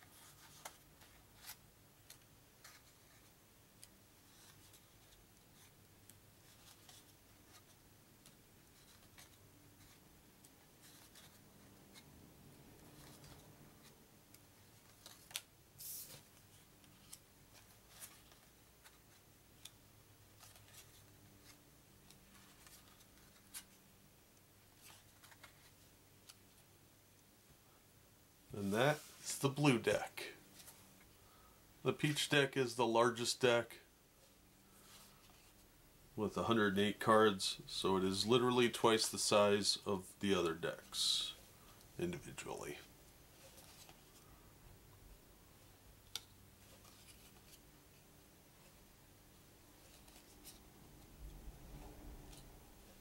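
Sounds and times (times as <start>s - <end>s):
paper cards clicking and sliding: 0.0s - 12.1s, 12.7s - 23.8s.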